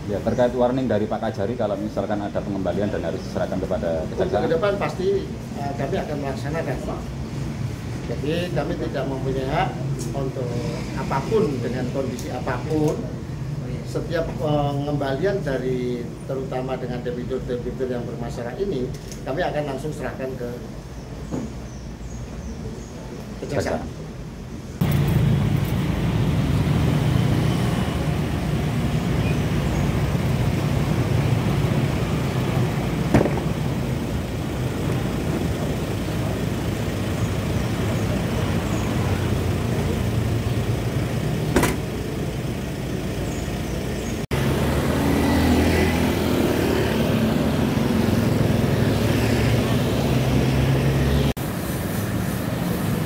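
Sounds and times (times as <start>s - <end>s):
motorcycles and cars passing: 0.0s - 18.6s, 24.8s - 53.0s
traffic engines humming: 0.0s - 53.0s
sharp knocks: 33.1s - 33.6s, 41.5s - 41.9s.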